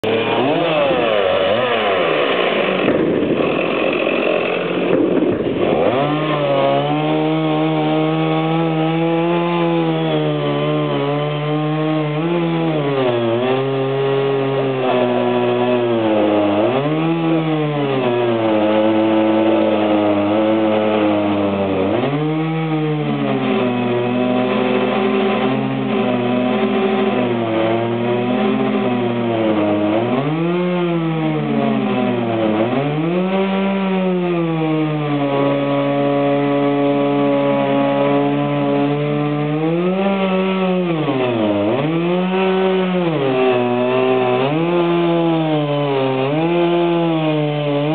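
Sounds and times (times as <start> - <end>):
chainsaw engine running: 0.0 - 47.9.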